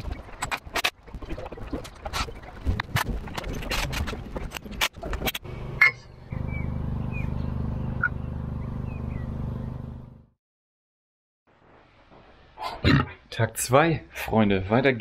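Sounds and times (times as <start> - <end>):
low motor hum: 4.1 - 10.4
bird chirps: 5.8 - 9.9.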